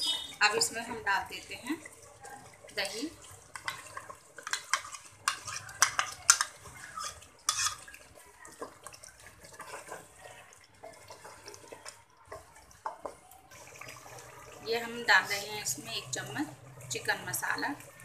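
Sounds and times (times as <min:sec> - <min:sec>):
wet stirring of curry: 0:00.0 - 0:18.0
utensils clicking and scraping a pan: 0:02.8 - 0:13.2.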